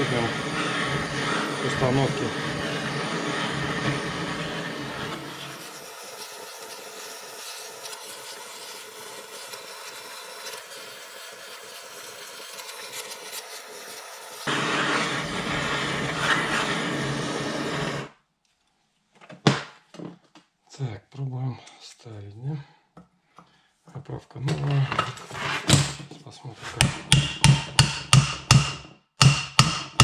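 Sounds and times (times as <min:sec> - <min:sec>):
gas torch hissing: 0:00.0 - 0:18.2.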